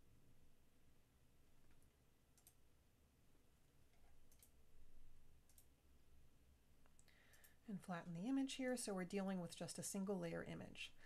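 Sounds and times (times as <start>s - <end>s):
faint computer mouse clicks: 1.7s - 2.6s, 6.8s - 7.6s.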